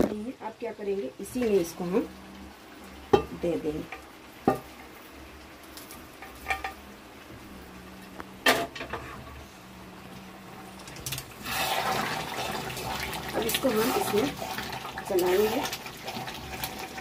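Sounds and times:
spoon stirring in pan: 5.7s - 6.8s, 11.4s - 17.0s.

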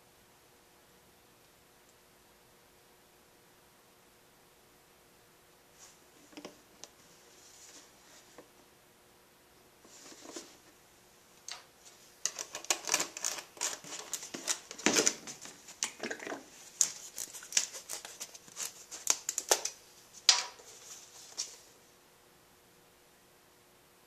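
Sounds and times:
plastic parts clicking and rattling: 12.2s - 20.6s.

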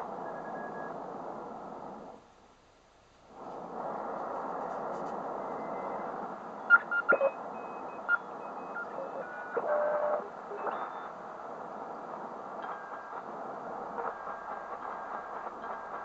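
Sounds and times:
radio static hiss: 0.0s - 16.0s
morse code beeps: 6.7s - 11.1s
sharp radio blips: 6.7s - 11.1s.

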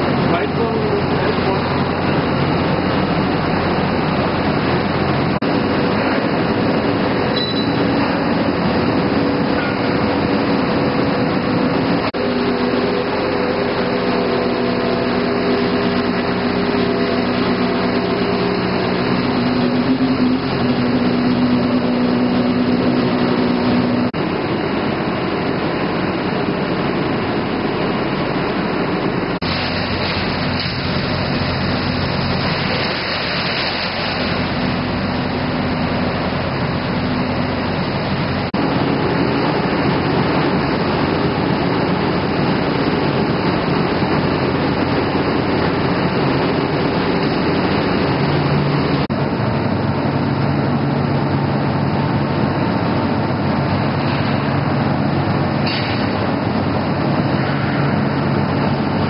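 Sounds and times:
motor hum: 0.0s - 59.0s
processing machinery running: 0.0s - 59.0s
grape mash tumbling and pouring: 29.4s - 36.8s.

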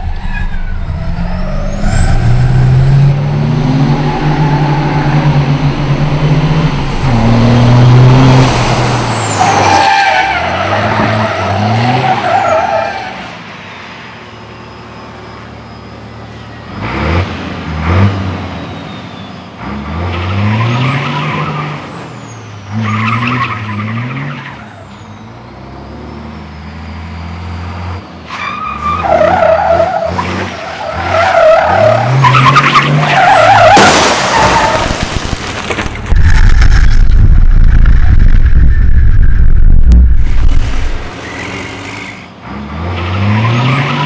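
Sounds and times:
truck diesel engine revving: 0.0s - 9.6s
glass panel crash: 33.7s - 37.2s.

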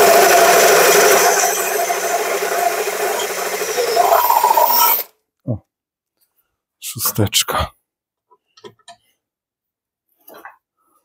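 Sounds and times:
cordless drill boring metal: 0.0s - 5.1s.

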